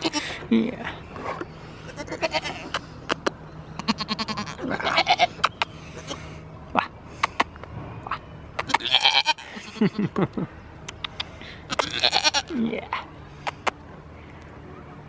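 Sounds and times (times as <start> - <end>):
goats bleating: 0.0 - 0.4, 1.9 - 2.7, 3.8 - 5.3, 8.7 - 9.6, 11.7 - 12.5.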